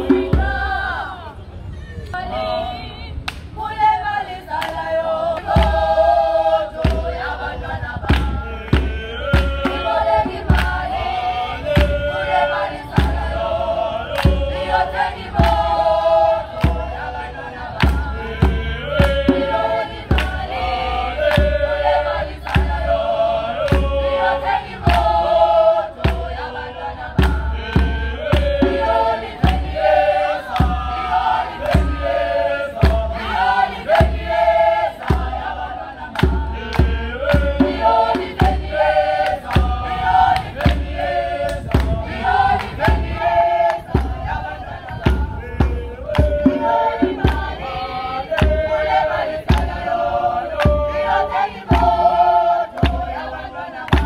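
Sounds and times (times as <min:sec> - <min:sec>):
people singing a cappella in harmony: 0:00.0 - 0:54.0
hand claps: 0:03.2 - 0:03.6, 0:04.5 - 0:05.8, 0:08.1 - 0:09.7, 0:10.5 - 0:10.8, 0:14.1 - 0:14.4, 0:20.1 - 0:20.4, 0:24.8 - 0:25.1, 0:27.2 - 0:27.5, 0:29.4 - 0:29.7, 0:39.2 - 0:43.0, 0:47.0 - 0:47.6, 0:48.3 - 0:48.6, 0:49.4 - 0:49.8, 0:50.5 - 0:50.8, 0:51.7 - 0:52.0, 0:52.7 - 0:54.0.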